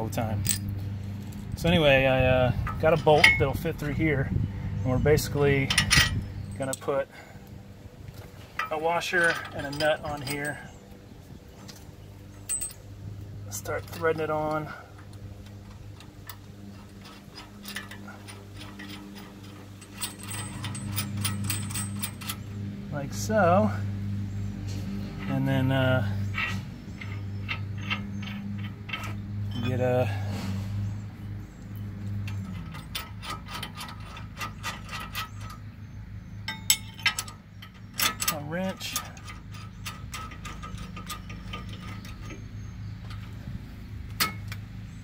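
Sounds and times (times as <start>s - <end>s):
steady low hum: 0.0s - 45.0s
wrench clinking on bolt: 0.4s - 0.7s, 2.6s - 3.6s, 5.2s - 6.9s, 8.6s - 10.8s, 12.3s - 12.9s, 13.5s - 22.4s, 26.2s - 29.9s, 32.2s - 43.4s, 44.1s - 44.6s.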